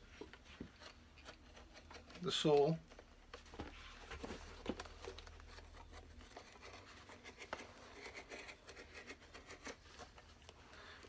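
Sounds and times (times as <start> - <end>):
hand tool scraping leather sole: 0.6 - 2.8.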